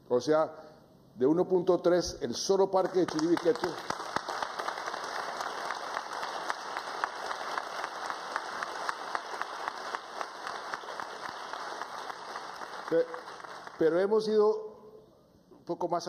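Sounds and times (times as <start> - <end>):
audience applauding: 2.8 - 14.2.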